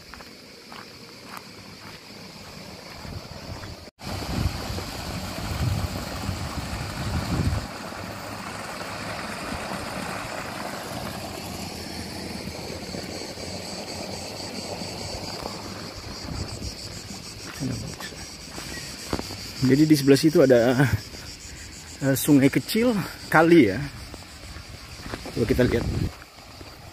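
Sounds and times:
outdoor hiss: 0:00.0 - 0:26.9
wind buffeting microphone: 0:03.0 - 0:07.8, 0:14.9 - 0:18.6, 0:23.9 - 0:26.8.

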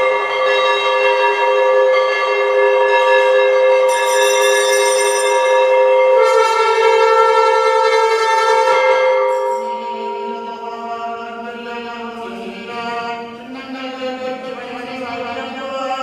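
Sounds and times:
temple bells ringing: 0:00.0 - 0:13.5
horn-like wind instrument tone: 0:06.0 - 0:09.7.

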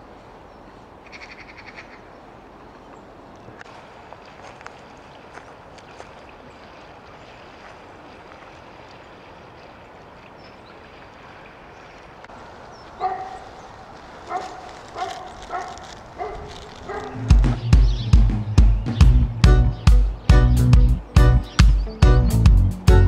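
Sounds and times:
dog barking: 0:13.0 - 0:13.4, 0:14.3 - 0:17.2.

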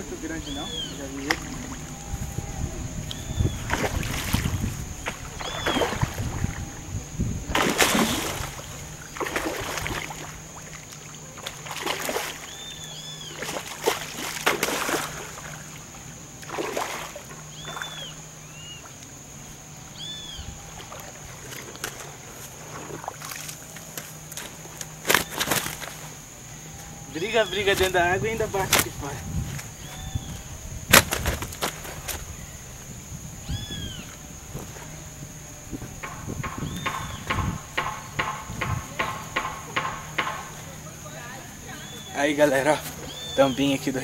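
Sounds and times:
fish splashing at water surface: 0:03.4 - 0:06.8, 0:07.4 - 0:19.1, 0:20.7 - 0:26.1.

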